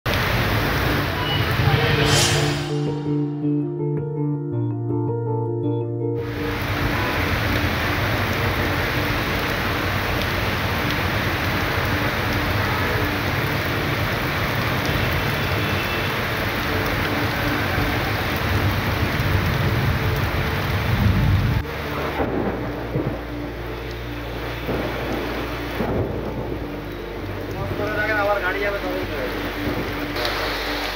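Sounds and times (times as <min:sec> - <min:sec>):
heavy rain pouring: 0:00.0 - 0:03.6, 0:06.2 - 0:30.9
low rumble: 0:01.1 - 0:04.1.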